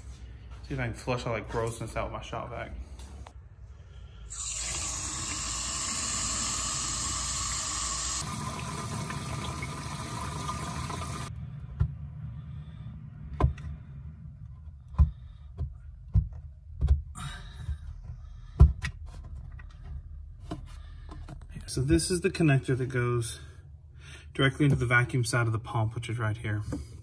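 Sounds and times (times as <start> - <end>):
water hissing from hose nozzle: 4.3 - 8.7.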